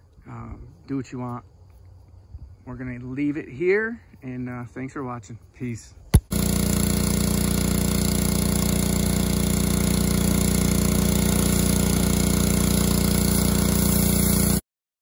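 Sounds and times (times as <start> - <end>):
pressure washer motor drone: 6.2 - 14.6
spray hissing: 6.2 - 14.6.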